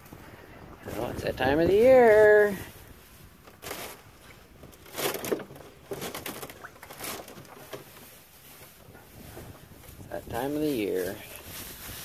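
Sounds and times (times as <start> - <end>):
water sloshing and splashing: 2.1 - 10.1.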